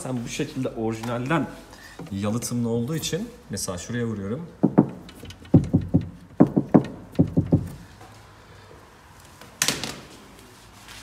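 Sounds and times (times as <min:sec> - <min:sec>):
knuckles knocking on metal panel: 0:04.6 - 0:07.8.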